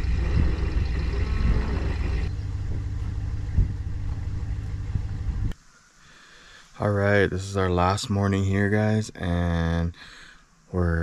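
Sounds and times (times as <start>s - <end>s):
engine idling: 0.0s - 5.5s.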